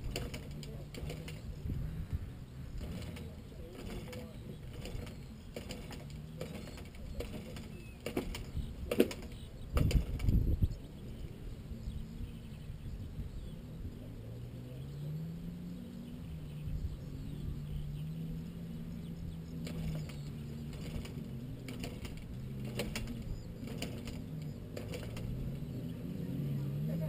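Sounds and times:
sharp clicks and rattles: 0.0s - 1.7s, 2.7s - 10.6s, 19.2s - 25.8s
distant motorbike engine: 0.0s - 27.0s
wind rumble on microphone: 1.4s - 5.1s, 7.2s - 27.0s.

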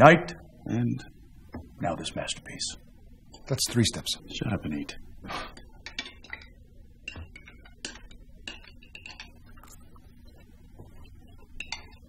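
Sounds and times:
faint low hum: 0.0s - 12.0s
metal fork clinking on plate: 5.9s - 9.4s, 11.6s - 12.0s.

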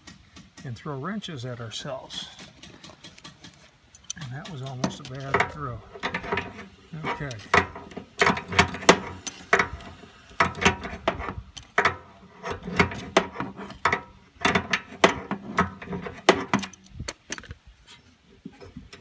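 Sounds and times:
wrench clinking on metal nut: 3.9s - 17.5s.

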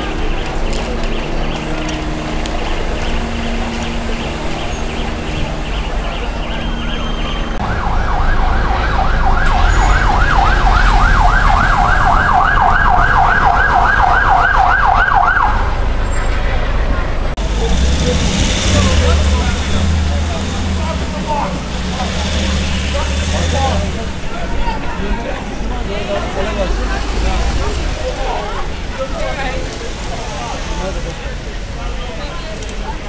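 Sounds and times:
street and vehicle noise: 0.0s - 33.0s
siren yelping: 4.3s - 15.7s.

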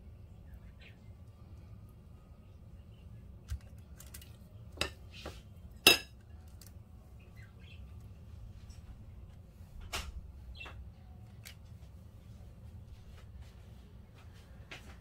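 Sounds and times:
low room hum: 0.0s - 15.0s
kitchenware clinking on dishes: 4.8s - 5.1s, 5.8s - 6.2s.

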